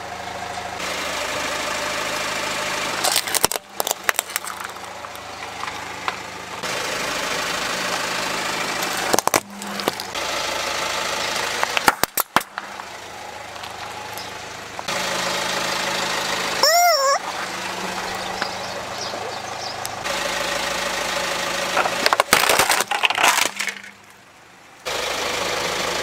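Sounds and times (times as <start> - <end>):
car engine idling: 0.0 - 26.0
plastic toys cracking under tyre: 3.0 - 6.2, 8.8 - 10.1, 11.6 - 12.7, 21.8 - 24.2.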